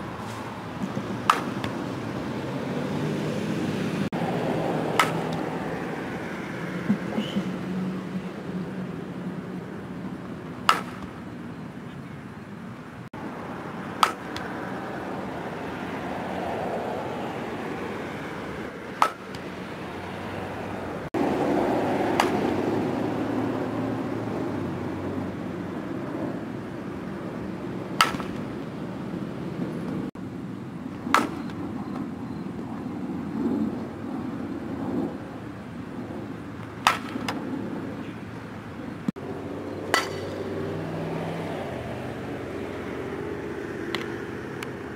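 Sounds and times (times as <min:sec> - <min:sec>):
bat hitting ball: 0:00.8 - 0:01.9, 0:04.8 - 0:05.7, 0:10.6 - 0:11.3, 0:13.8 - 0:14.7, 0:18.9 - 0:19.6, 0:21.9 - 0:22.8, 0:27.9 - 0:28.6, 0:31.0 - 0:31.6, 0:36.6 - 0:37.4, 0:39.9 - 0:40.6, 0:43.9 - 0:44.2.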